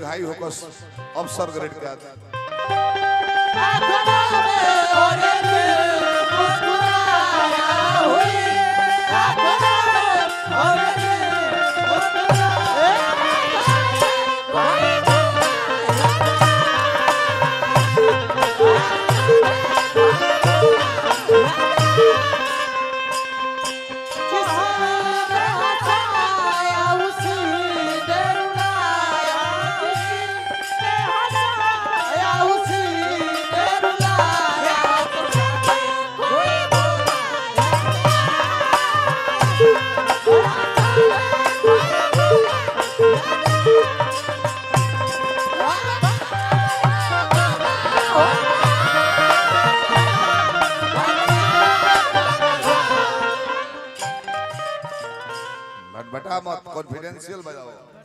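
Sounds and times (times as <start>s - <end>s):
harmonium melody: 0.0s - 58.0s
hand drum beating: 36.6s - 52.6s.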